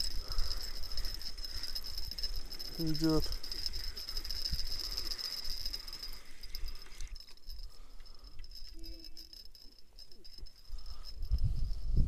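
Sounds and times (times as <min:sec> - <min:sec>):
fishing reel whirring: 0:00.0 - 0:12.0.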